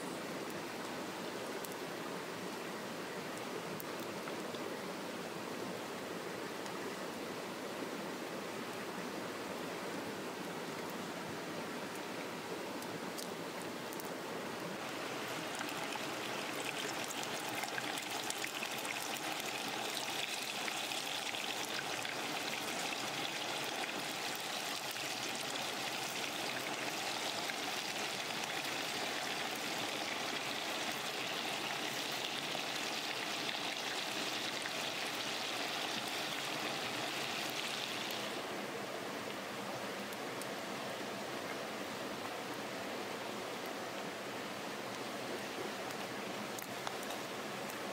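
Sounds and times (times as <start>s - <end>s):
fish sizzling in oil: 15.1s - 38.4s.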